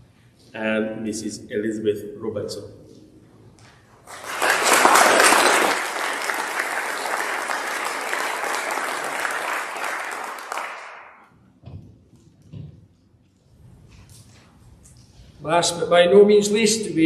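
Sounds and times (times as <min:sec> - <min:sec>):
crowd applauding: 0:04.0 - 0:11.3.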